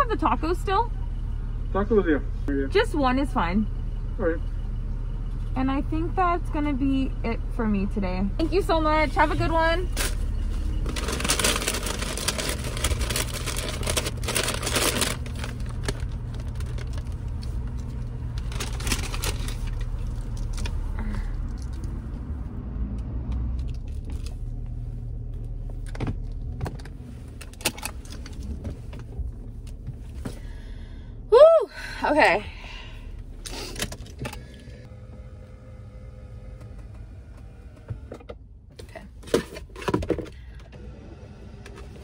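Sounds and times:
car running from inside cabin: 0:00.0 - 0:42.0
paper bag rustling: 0:09.9 - 0:17.2, 0:18.4 - 0:20.2.

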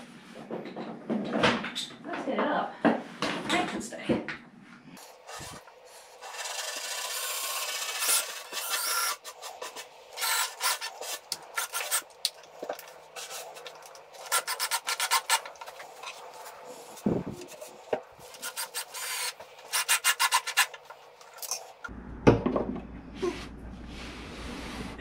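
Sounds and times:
cordless drill driving screws: 0:06.2 - 0:09.2, 0:10.2 - 0:10.9, 0:18.4 - 0:20.6.

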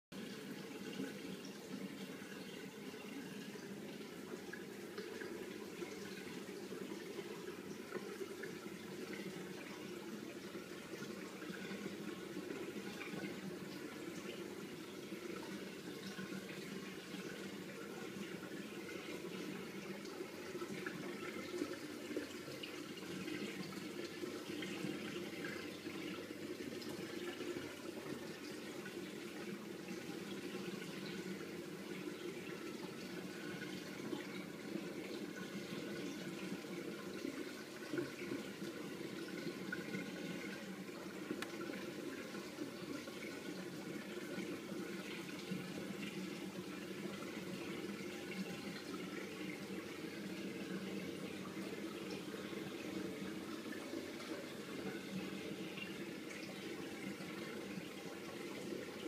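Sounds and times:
aquarium filter water trickling: 0:00.2 - 0:59.0
faint click: 0:41.3 - 0:41.6.

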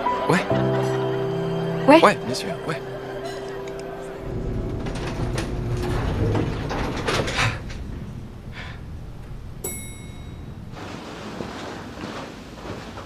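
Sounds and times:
lift arrival chime: 0:00.0 - 0:11.1
lift rumbling: 0:00.0 - 0:13.0
lift doors sliding: 0:00.1 - 0:13.0.

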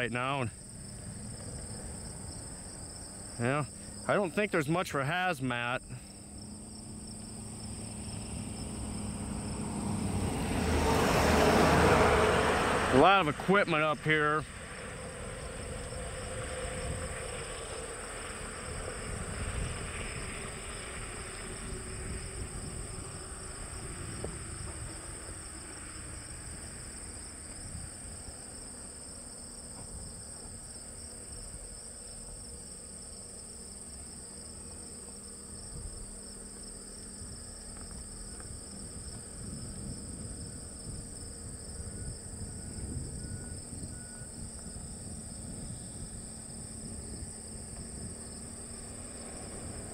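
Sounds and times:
crickets and insects chirping: 0:00.0 - 0:49.9
low uneven rumble: 0:12.8 - 0:49.9.

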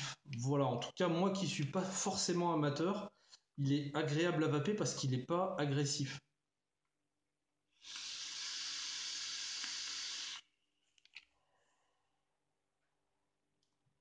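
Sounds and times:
electronic cigarette hissing: 0:07.8 - 0:10.5.

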